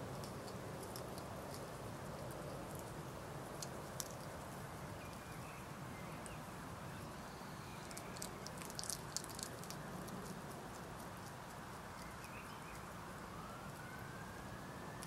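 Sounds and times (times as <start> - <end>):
clicks and crackles in grass: 0.0 - 5.5, 7.8 - 12.9
low background hiss: 0.0 - 15.0.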